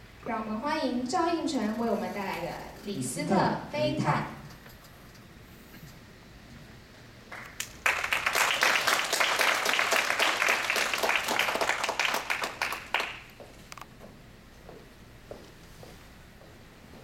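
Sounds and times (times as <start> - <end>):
audience applauding: 7.3 - 13.4.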